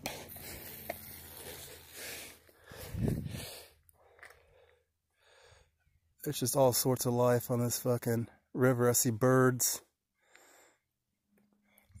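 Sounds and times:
man breathing: 0.0 - 5.8, 10.2 - 10.9.

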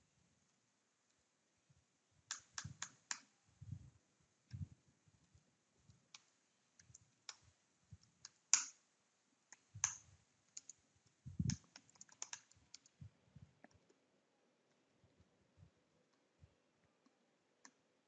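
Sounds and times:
typing on computer keyboard: 11.4 - 13.0.

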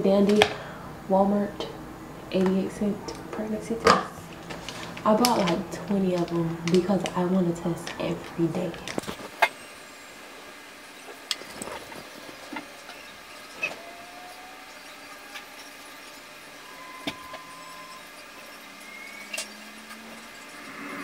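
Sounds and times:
faint thin whistling tones: 12.8 - 21.0.

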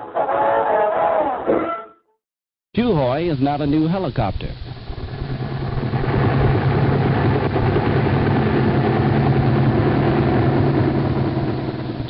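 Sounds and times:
helicopter engine and rotor: 4.6 - 12.0.

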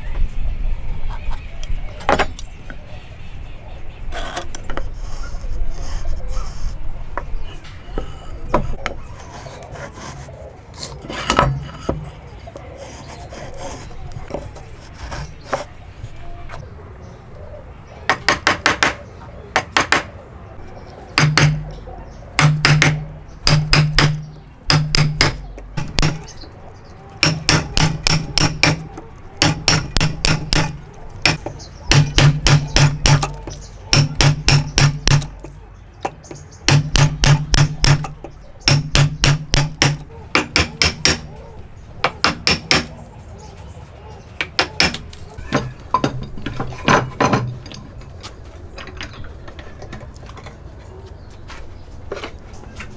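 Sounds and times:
mallet striking wood chisel: 21.2 - 21.6, 22.4 - 26.3, 27.2 - 35.5, 36.7 - 41.3, 42.0 - 42.9, 44.5 - 45.0.

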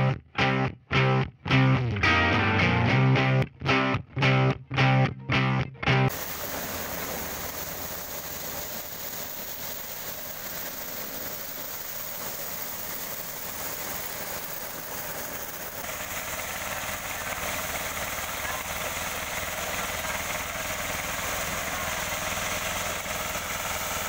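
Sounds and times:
corn sheller mechanical drone: 6.1 - 24.0.

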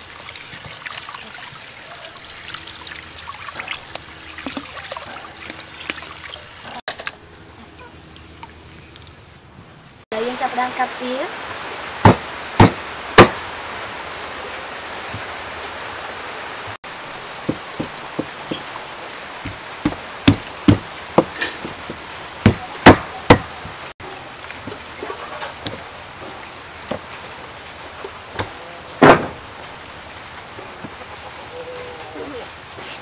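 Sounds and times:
cleaver chopping on wooden block: 12.0 - 13.4, 19.4 - 23.5.

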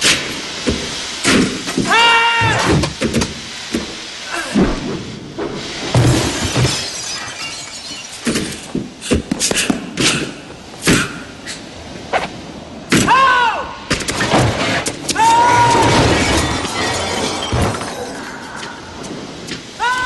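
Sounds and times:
metal trash can crashing: 5.9 - 6.9, 15.8 - 18.0
glass breaking: 5.9 - 8.8, 15.3 - 18.9.

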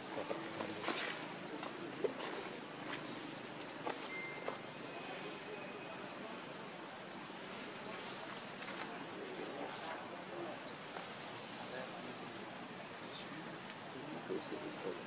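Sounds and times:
high-pitched insect trill: 2.6 - 7.7.

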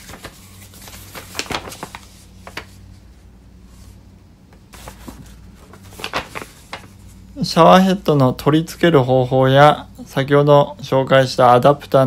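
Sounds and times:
paper leaflet crinkling: 0.0 - 3.1, 4.6 - 7.2.

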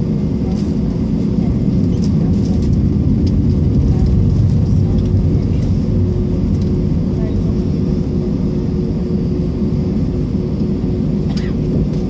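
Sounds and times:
constant hum: 0.0 - 12.0
jet engine rumble in cabin: 0.0 - 12.0.

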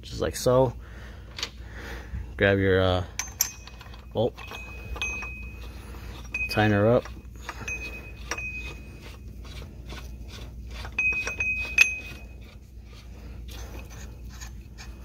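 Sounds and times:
metal tool clinking on gear: 3.2 - 9.6, 10.8 - 12.6.

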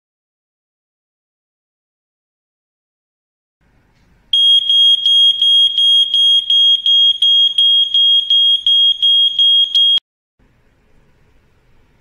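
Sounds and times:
smoke alarm pulsing tone: 4.3 - 10.0.

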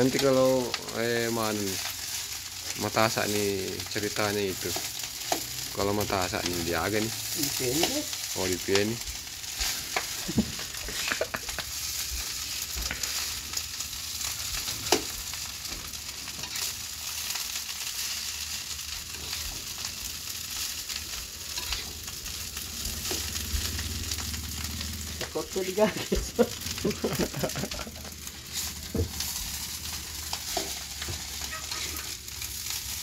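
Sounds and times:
rice sizzling in a pan: 0.0 - 33.0
spatula scraping a pan: 9.1 - 15.5, 16.3 - 19.9, 20.5 - 23.3, 28.2 - 33.0.

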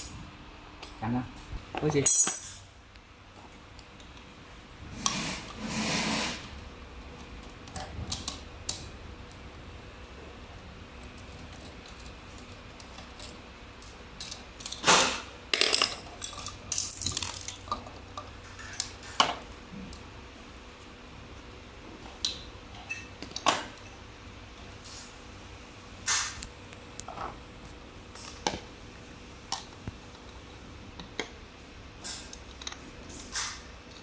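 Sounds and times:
metal parts clicking and clattering: 1.8 - 2.7, 11.0 - 20.0.

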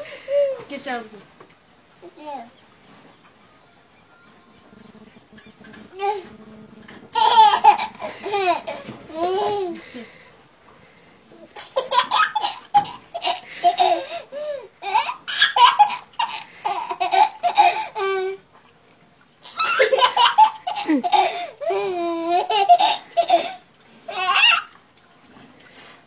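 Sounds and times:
children laughing: 7.1 - 10.1, 11.6 - 18.4, 19.4 - 24.7.

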